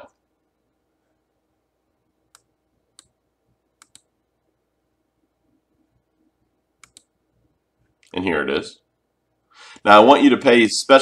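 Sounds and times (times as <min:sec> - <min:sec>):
computer mouse clicking: 0:02.3 - 0:03.2, 0:03.8 - 0:04.1, 0:06.8 - 0:07.1.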